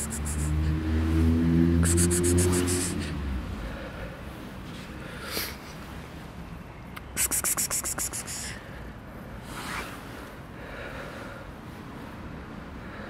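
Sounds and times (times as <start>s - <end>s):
scratching strokes: 0.0s - 0.5s
soft rustle: 9.4s - 10.4s.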